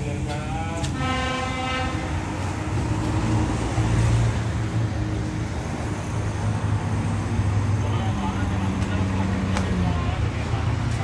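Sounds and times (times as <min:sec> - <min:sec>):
diesel engine idling: 0:00.0 - 0:11.0
train horn blast: 0:00.8 - 0:02.5.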